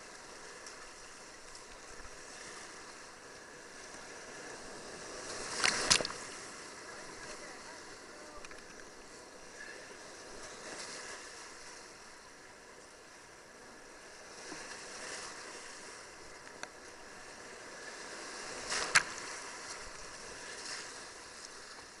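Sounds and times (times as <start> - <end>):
water rushing and splashing: 0.0 - 22.0
paddle splashing: 3.7 - 11.8.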